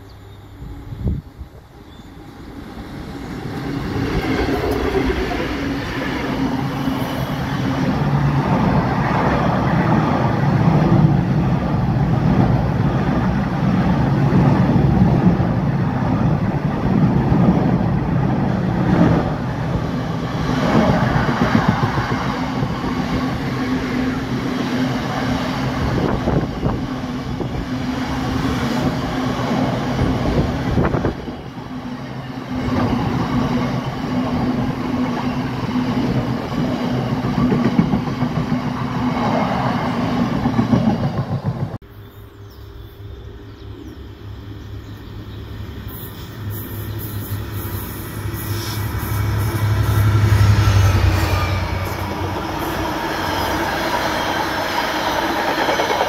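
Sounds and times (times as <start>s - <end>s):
diesel locomotive passing: 0.0s - 41.9s, 42.5s - 56.0s
train wheels clattering on rails: 32.6s - 41.8s, 51.1s - 56.0s.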